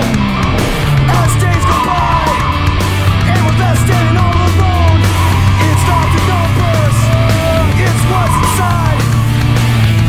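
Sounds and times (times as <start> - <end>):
heavy rock music: 0.0 - 10.0.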